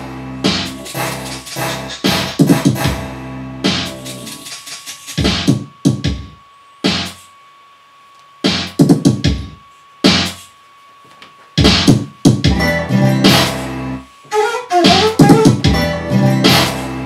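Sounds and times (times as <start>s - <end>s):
electronic music sample hits: 8.4s - 10.4s.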